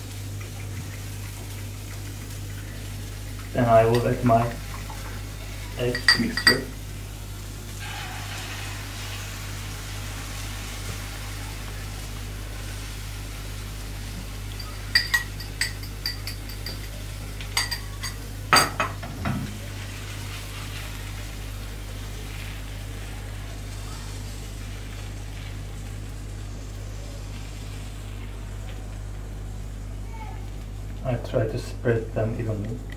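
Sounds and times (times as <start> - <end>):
low hum and hiss: 0.0 - 32.9
spoon clinking ceramic bowl: 5.9 - 6.7, 14.6 - 16.9, 17.6 - 18.9.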